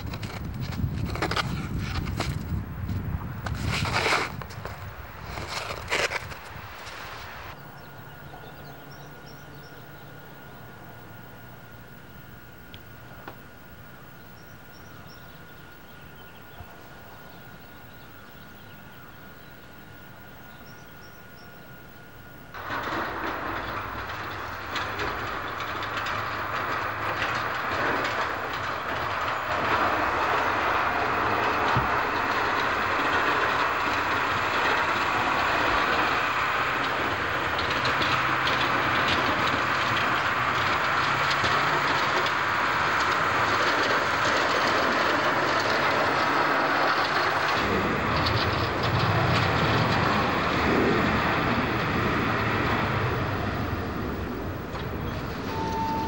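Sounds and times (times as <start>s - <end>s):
snowplow blade scraping snow: 0.0s - 7.6s, 22.6s - 56.0s
truck engine running: 0.0s - 56.0s.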